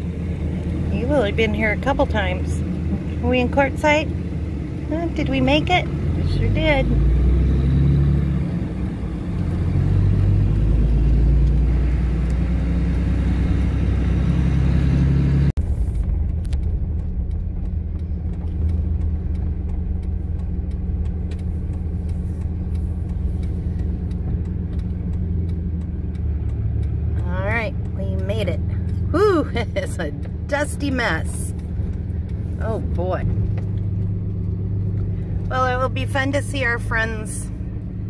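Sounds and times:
diesel engine and road rumble: 0.0 - 38.0
light clicks and rattles: 15.9 - 38.0.

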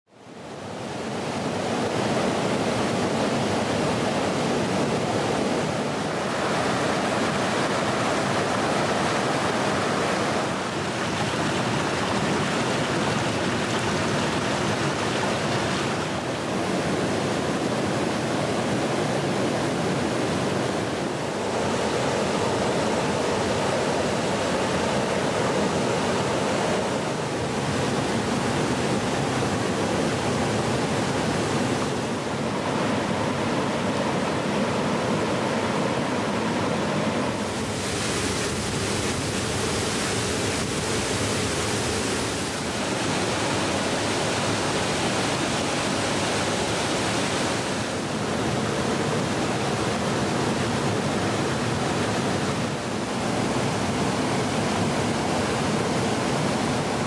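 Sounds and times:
stream rushing over boulders: 0.1 - 57.0.

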